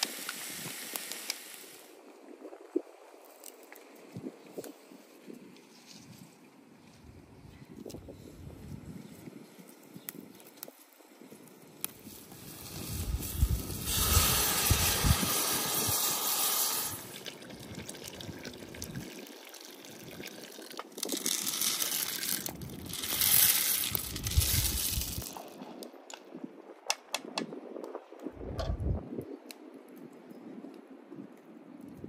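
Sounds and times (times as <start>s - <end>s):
water pouring into a pot: 12.3s - 24.0s.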